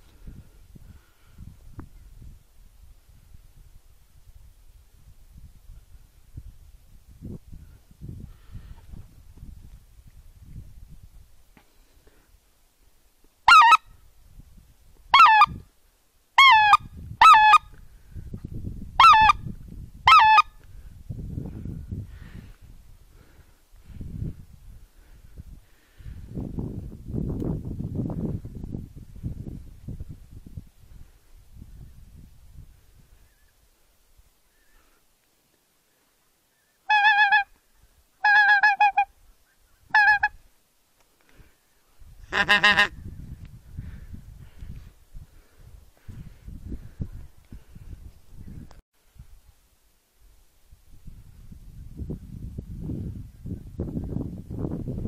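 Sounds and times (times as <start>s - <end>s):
goose honks: 13.5s - 13.8s, 16.4s - 17.6s, 20.1s - 20.5s, 36.9s - 37.5s, 38.2s - 39.1s, 42.3s - 42.9s.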